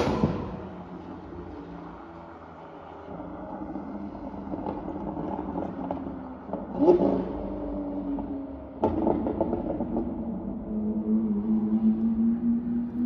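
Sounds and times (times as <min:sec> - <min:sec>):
exhaust crackles and pops: 0:03.6 - 0:07.4, 0:08.8 - 0:10.4.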